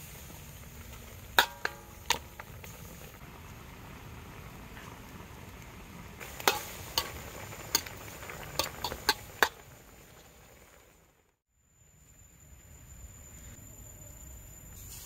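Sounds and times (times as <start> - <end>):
soup simmering hiss: 0.0 - 13.6
ladle clinking against wok: 1.4 - 2.5, 6.3 - 7.9, 8.5 - 9.6.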